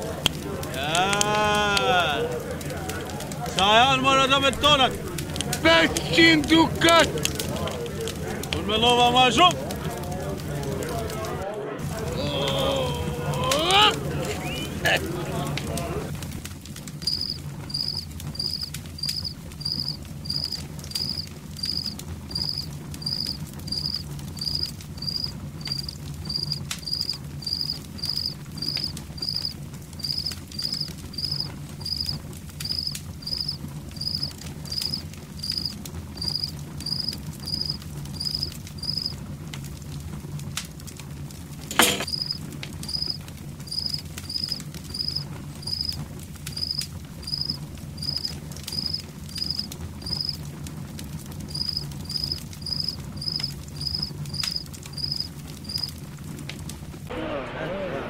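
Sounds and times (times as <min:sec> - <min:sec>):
campfire crackling: 0:00.0 - 0:58.0
fire popping: 0:00.0 - 0:58.0
cricket chirping: 0:17.0 - 0:39.1, 0:41.9 - 0:50.4, 0:51.5 - 0:55.9.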